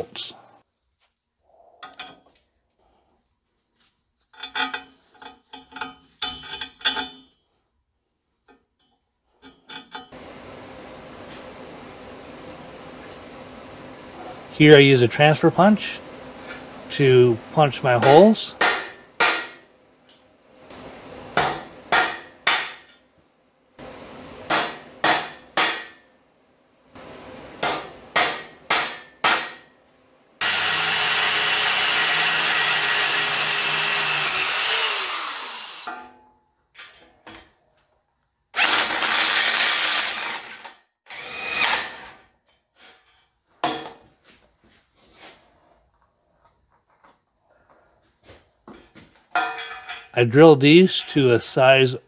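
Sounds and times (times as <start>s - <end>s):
drill boring into steel: 30.4s - 35.9s, 38.6s - 42.2s.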